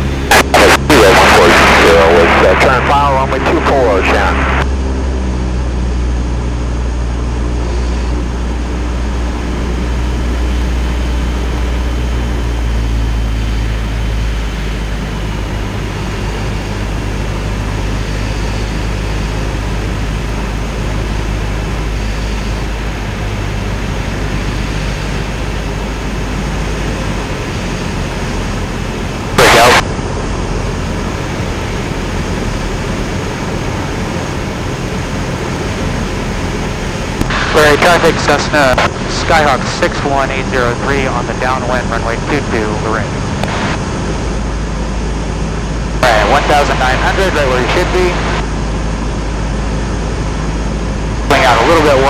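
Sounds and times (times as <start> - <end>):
propeller airplane engine drone: 0.0 - 52.0
rushing air: 21.0 - 39.6.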